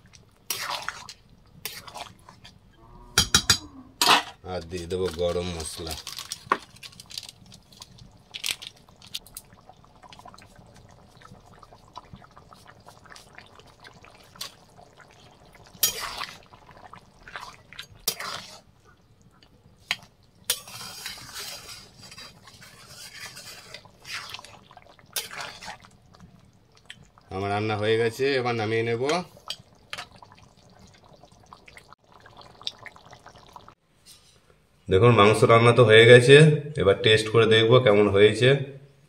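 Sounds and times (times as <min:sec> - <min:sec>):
curry simmering and bubbling: 0:00.0 - 0:02.9, 0:04.6 - 0:33.8
metal spatula scraping pan: 0:18.1 - 0:18.6, 0:20.5 - 0:24.2.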